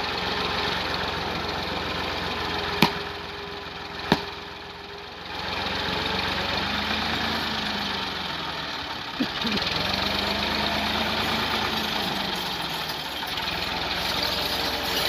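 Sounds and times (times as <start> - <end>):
tractor diesel engine running: 0.0 - 15.0
hoe striking earth: 2.6 - 3.2, 4.0 - 4.5.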